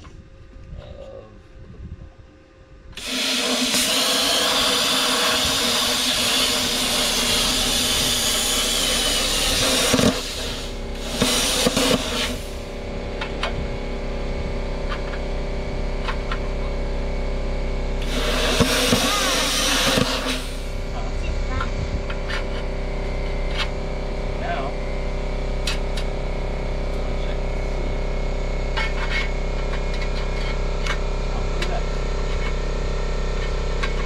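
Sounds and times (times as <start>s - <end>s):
plasma cutter hissing: 3.0s - 12.8s, 18.0s - 20.8s
plasma cutter humming: 3.0s - 13.2s, 17.9s - 34.0s.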